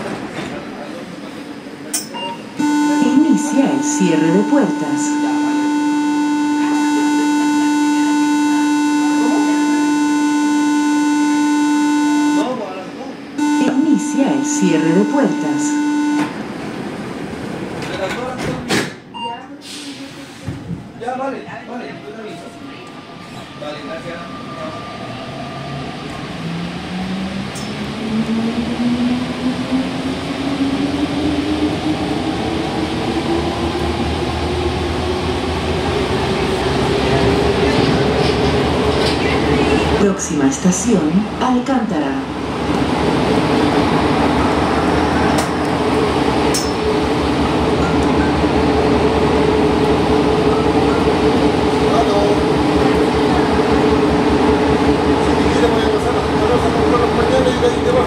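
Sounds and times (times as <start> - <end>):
train door warning buzzer: 2.6 - 12.6, 13.4 - 16.6
train running gear rumble: 25.6 - 58.0.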